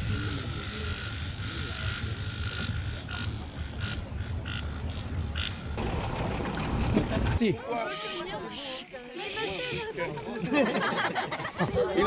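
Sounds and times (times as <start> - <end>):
frogs calling: 0.0 - 6.0, 7.6 - 11.1.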